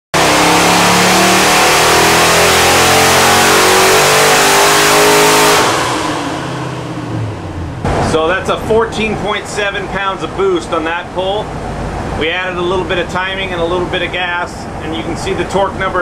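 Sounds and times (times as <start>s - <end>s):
engine revving at full throttle: 0.2s - 8.0s.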